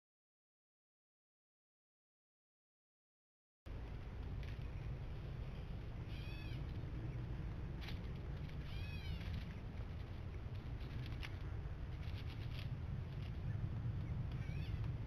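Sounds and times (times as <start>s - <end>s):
steady low rumble: 3.7s - 15.0s
bird calls: 4.5s - 15.0s.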